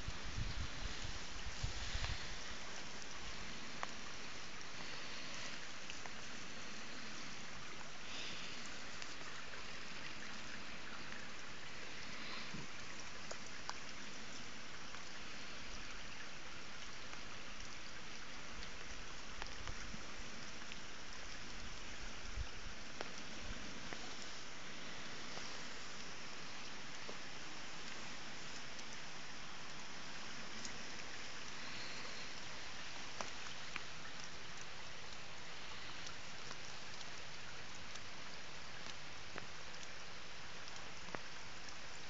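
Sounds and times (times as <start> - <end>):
outdoor background hiss: 0.0 - 42.0.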